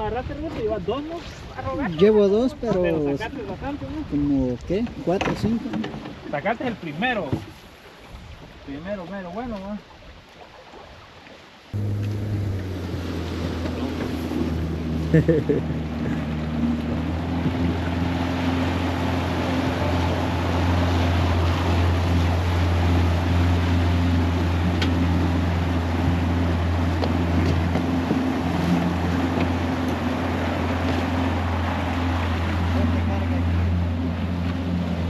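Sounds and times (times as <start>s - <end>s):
outboard motor humming: 0.0s - 9.8s, 11.7s - 35.0s
rushing water: 0.0s - 35.0s
wind: 0.0s - 35.0s.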